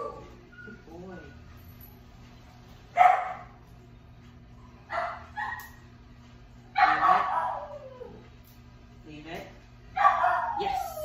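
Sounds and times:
dog barking: 3.0s - 3.6s, 4.9s - 5.8s, 6.8s - 7.8s, 10.0s - 10.9s.

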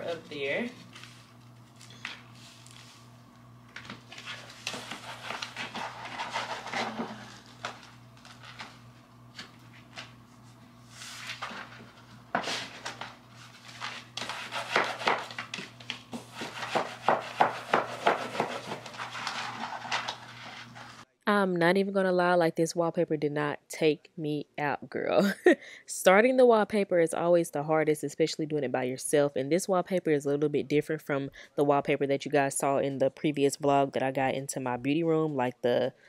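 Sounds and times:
paper wallpaper rustling: 0.0s - 3.1s, 3.8s - 21.0s.

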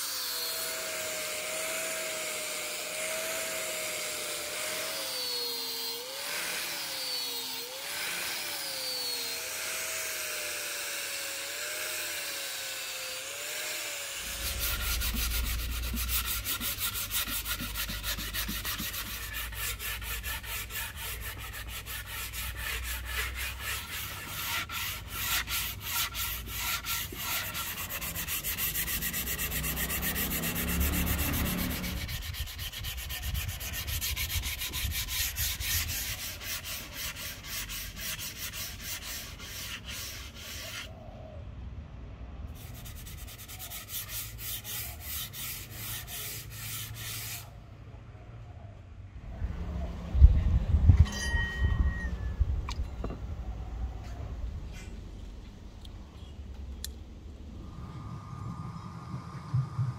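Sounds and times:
hand sanding wood with sandpaper: 13.2s - 40.9s, 42.6s - 47.5s.

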